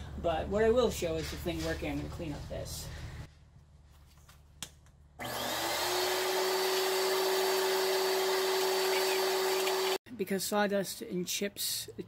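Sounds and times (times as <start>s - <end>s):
vacuum motor whining: 5.2s - 10.0s.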